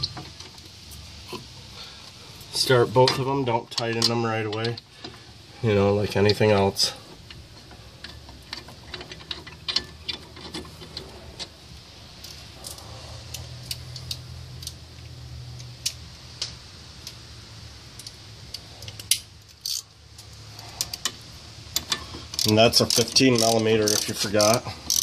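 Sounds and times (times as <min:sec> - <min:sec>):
metal bolts and tools clicking: 0:03.0 - 0:05.2, 0:06.2 - 0:11.5, 0:18.0 - 0:25.0.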